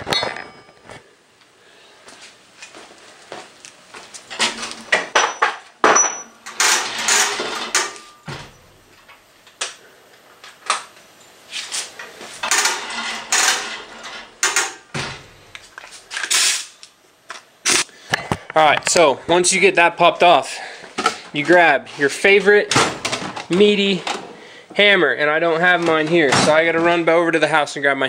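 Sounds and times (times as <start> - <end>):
metal tools clanking and rattling: 0.0 - 0.9, 4.3 - 8.5, 12.4 - 14.8.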